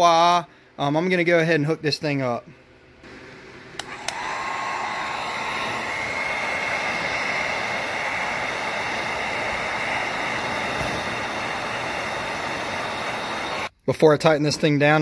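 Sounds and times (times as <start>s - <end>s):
heat gun fan blowing: 3.0s - 15.0s
heat gun switch clicks: 3.8s - 4.4s.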